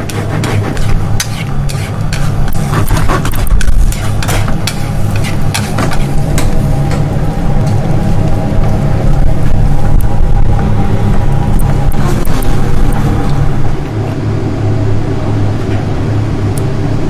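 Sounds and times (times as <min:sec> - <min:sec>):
utensils scraping frying pan: 0:00.0 - 0:06.5
steady low hum: 0:00.0 - 0:17.0.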